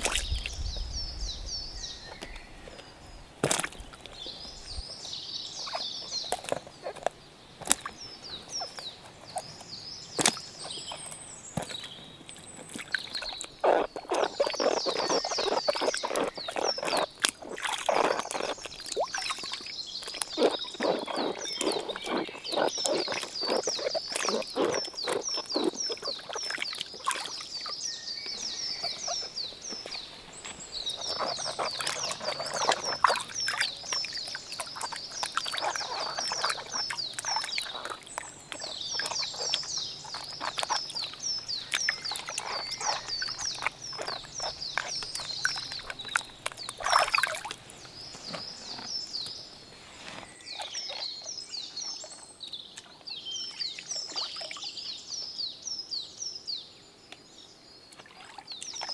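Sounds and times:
water splashing in a tub: 0:00.0 - 0:00.6, 0:03.4 - 0:04.8, 0:10.2 - 0:49.0, 0:50.4 - 0:54.8, 0:57.9 - 0:58.9
birds chirping: 0:00.0 - 0:58.9.

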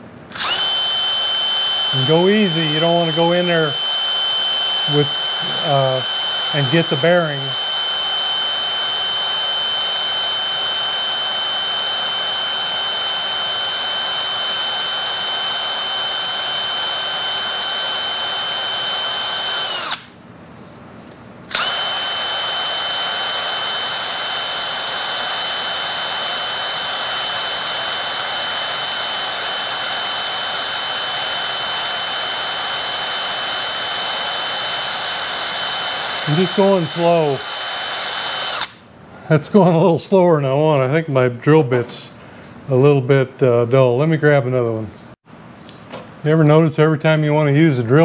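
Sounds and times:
electric drill drilling into steel: 0:00.3 - 0:20.2, 0:21.5 - 0:38.8.

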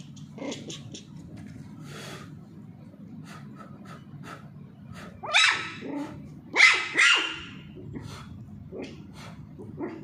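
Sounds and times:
puppy yipping: 0:05.2 - 0:05.8, 0:06.6 - 0:07.6.

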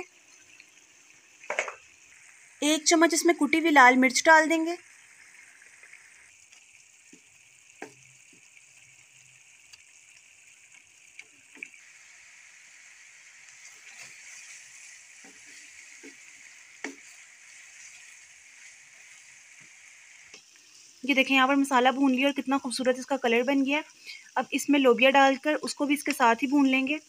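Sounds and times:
masala sizzling in a pan: 0:00.0 - 0:27.0
spatula tapping a pan: 0:07.1 - 0:08.0, 0:15.2 - 0:17.2.

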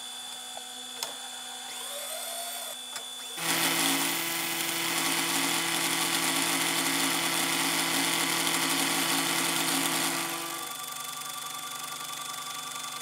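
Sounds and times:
milling machine cutting metal: 0:03.3 - 0:10.9.

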